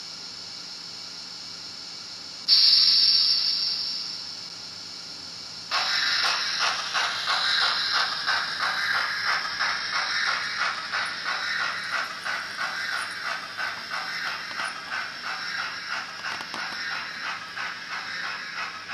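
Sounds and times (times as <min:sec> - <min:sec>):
model train running on track: 0:05.7 - 0:18.9.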